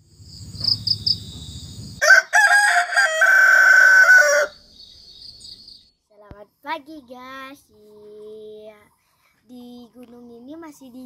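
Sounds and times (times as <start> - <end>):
rooster crowing: 2.0 - 4.6.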